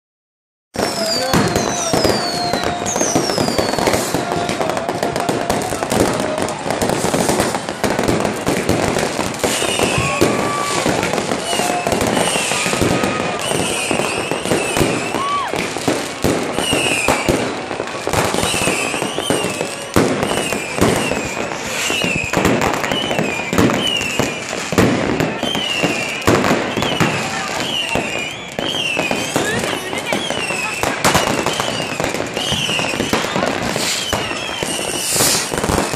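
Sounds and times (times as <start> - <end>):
fireworks bangs and crackling: 0.7 - 35.9
high firework whistles: 0.8 - 35.9.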